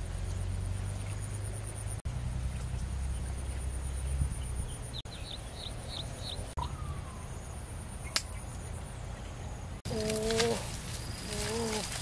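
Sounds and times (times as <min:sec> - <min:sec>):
insect drone: 0:00.0 - 0:12.0
small bird chirping: 0:02.5 - 0:07.3.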